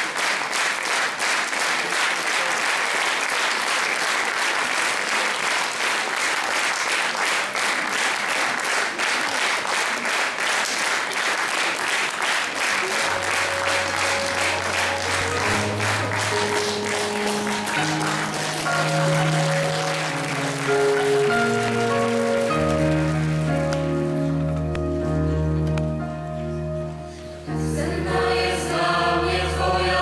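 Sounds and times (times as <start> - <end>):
audience applauding: 0.0 - 25.8
music with long held notes: 12.9 - 30.0.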